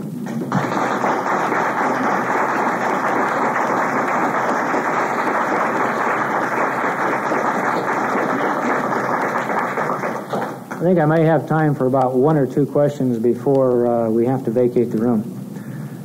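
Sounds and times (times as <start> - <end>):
audience applauding: 0.0 - 10.8.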